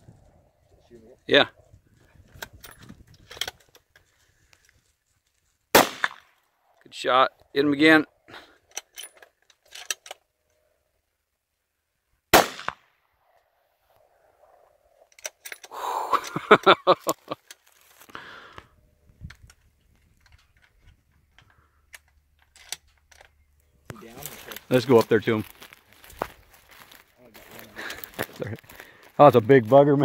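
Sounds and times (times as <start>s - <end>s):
rifle shot: 5.7s - 6.3s, 12.3s - 13.0s.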